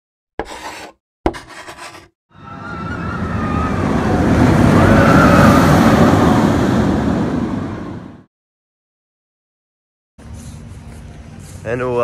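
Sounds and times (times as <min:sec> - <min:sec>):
rumbling rush: 0:02.4 - 0:08.3.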